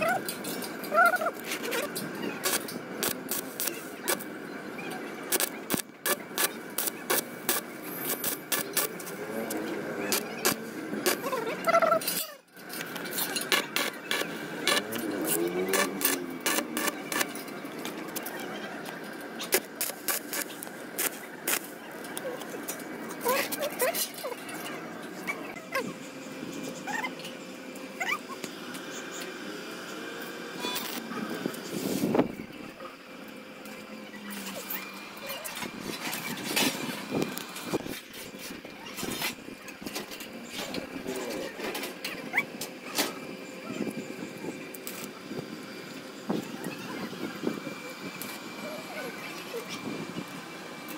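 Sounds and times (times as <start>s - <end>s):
outdoor background noise: 0.0s - 50.9s
welding arc crackling: 1.2s - 4.4s, 5.2s - 11.3s, 12.9s - 18.3s, 18.9s - 22.8s.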